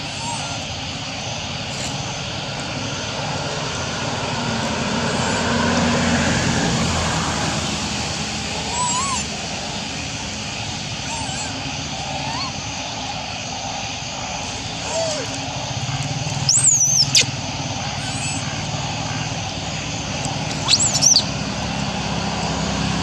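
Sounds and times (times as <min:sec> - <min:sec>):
distant engine drone: 0:00.0 - 0:23.0
rising-and-falling squeak: 0:20.5 - 0:21.3.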